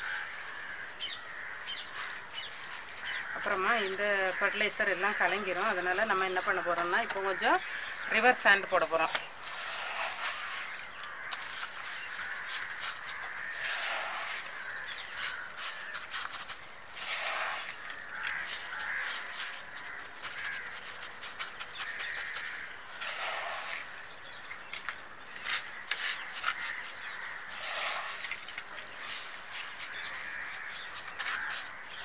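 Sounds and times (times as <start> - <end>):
plastic glove rustling: 0.0 - 8.1, 9.0 - 32.0
sand crunching on soil: 0.0 - 32.0.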